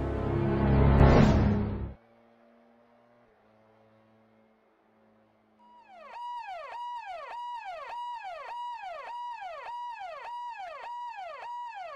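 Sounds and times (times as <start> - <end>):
police siren: 5.5 - 11.9.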